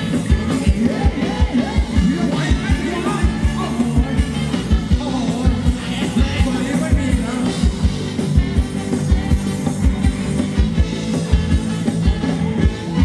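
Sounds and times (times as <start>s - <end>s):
person singing: 0.0s - 7.9s
fast drum beat: 0.0s - 13.0s
live band playing dance music: 0.0s - 13.0s.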